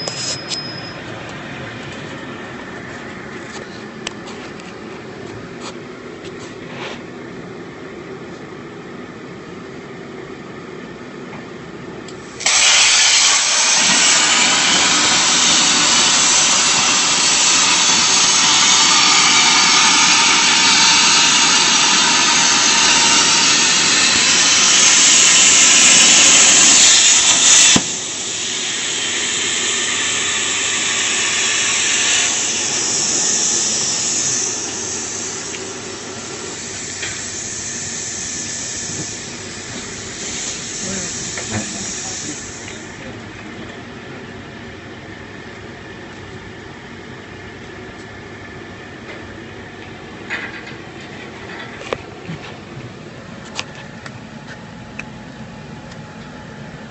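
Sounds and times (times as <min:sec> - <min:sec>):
low machine hum: 0:00.0 - 0:12.5, 0:13.2 - 0:56.9
plasma torch hissing: 0:12.2 - 0:43.2.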